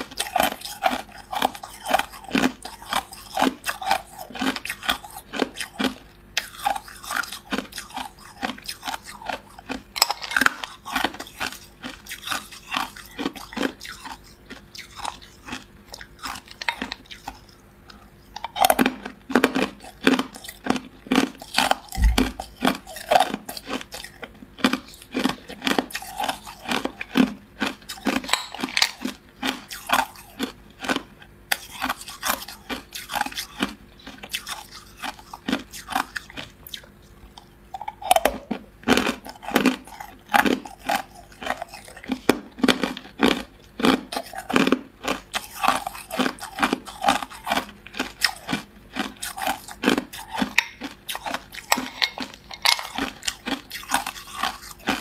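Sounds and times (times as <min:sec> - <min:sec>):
ice cubes being chewed: 0:00.0 - 0:55.0
low thud: 0:22.0 - 0:22.4.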